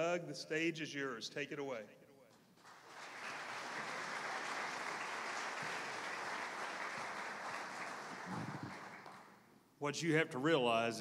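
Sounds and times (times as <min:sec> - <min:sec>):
large audience applauding: 0:02.6 - 0:09.4.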